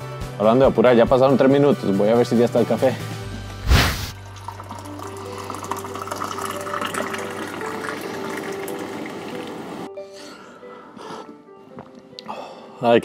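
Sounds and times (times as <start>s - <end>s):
coffee pouring into a mug: 4.2s - 9.9s.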